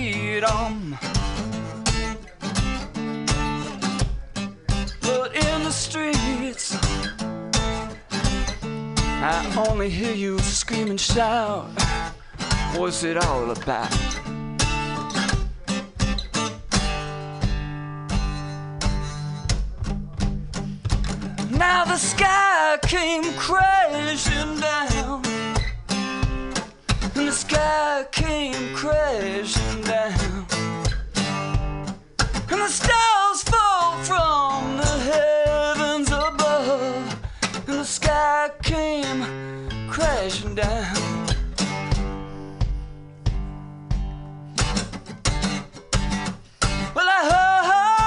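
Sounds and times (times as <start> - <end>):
man singing: 0.0 - 7.2, 8.2 - 16.1, 21.0 - 42.5, 46.6 - 48.0
acoustic guitar strumming chords: 0.0 - 48.0.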